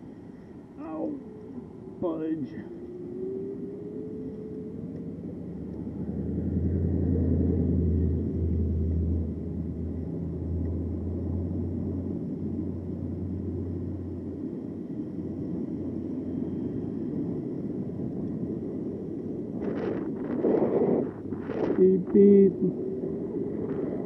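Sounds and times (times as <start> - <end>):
wind and tyres rumbling: 0.0 - 24.0
deep motor hum: 0.8 - 14.6.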